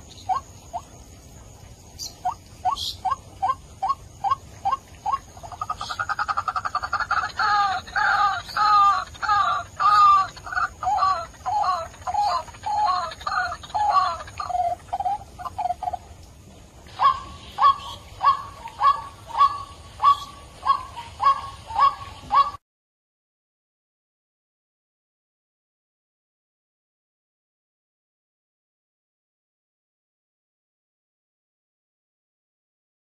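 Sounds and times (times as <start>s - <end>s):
waterhen calling: 0.0s - 22.6s.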